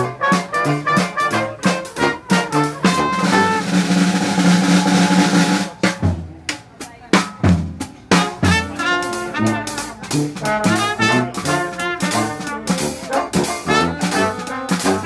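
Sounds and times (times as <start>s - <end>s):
dixieland jazz band playing: 0.0s - 15.0s
drum roll: 0.0s - 15.0s.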